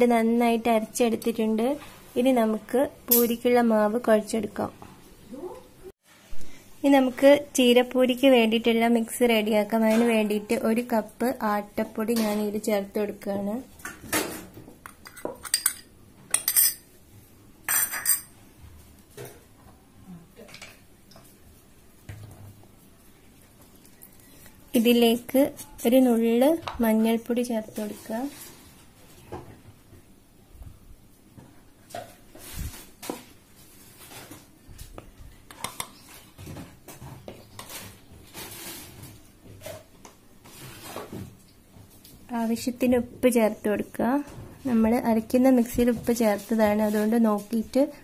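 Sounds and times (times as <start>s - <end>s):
kitchenware clinking and knocking: 13.9s - 16.9s, 17.7s - 18.4s.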